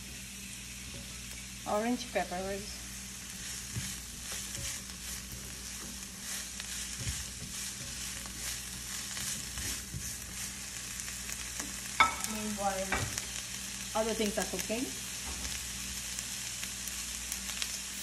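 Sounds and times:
vegetables sizzling in a skillet: 0.0s - 18.0s
spatula stirring in a pan: 0.1s - 1.6s, 2.8s - 12.2s.

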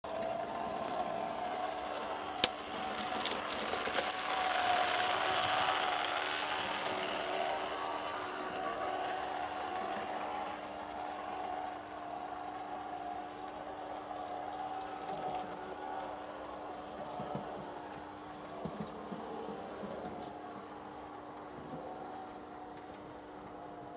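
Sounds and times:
model train motor whirring: 0.1s - 18.0s.

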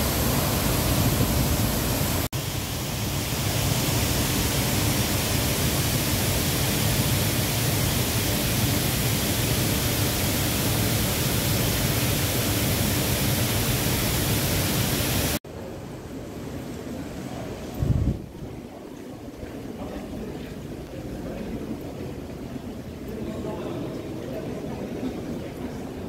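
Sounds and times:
steady rushing noise: 0.0s - 15.4s.

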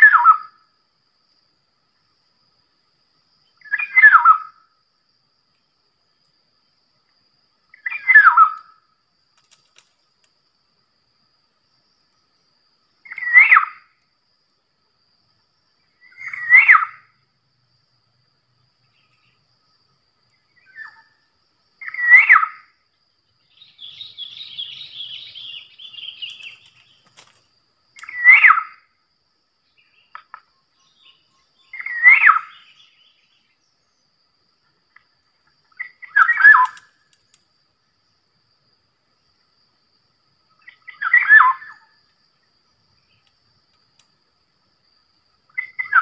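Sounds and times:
bird fluty calls: 3.6s - 4.6s, 7.7s - 8.8s, 13.0s - 13.8s, 16.0s - 17.0s, 20.5s - 21.2s, 21.8s - 22.6s, 23.4s - 27.1s, 28.0s - 28.8s, 29.8s - 33.6s, 35.7s - 36.9s, 40.6s - 41.9s, 45.5s - 46.0s
small bird twittering: 23.4s - 27.1s, 35.7s - 36.9s.

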